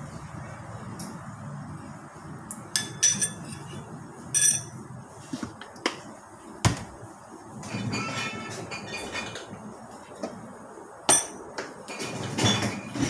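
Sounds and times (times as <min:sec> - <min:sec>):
metal spoon clinking on ceramic bowl: 0:02.8 - 0:03.7, 0:04.4 - 0:04.8, 0:11.1 - 0:11.4.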